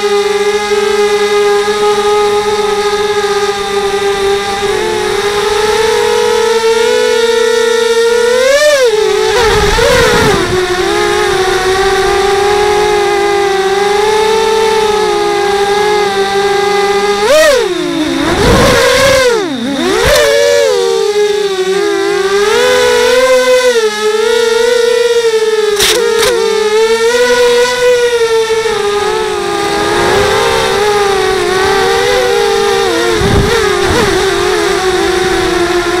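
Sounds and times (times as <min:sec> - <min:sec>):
quadcopter motors whining: 0:00.0 - 0:36.0
wind rush: 0:09.2 - 0:12.6, 0:29.2 - 0:35.7.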